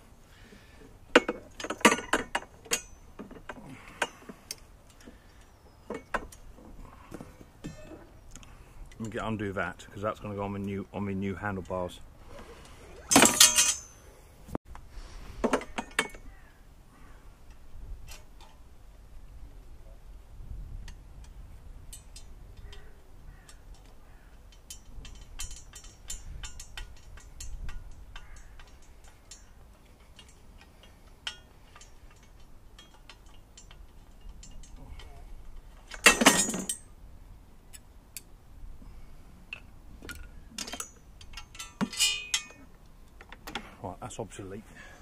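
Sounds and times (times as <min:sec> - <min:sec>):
metal tool clicks and clinks: 0:01.2 - 0:03.0, 0:13.1 - 0:14.0, 0:24.5 - 0:35.2, 0:40.1 - 0:42.6.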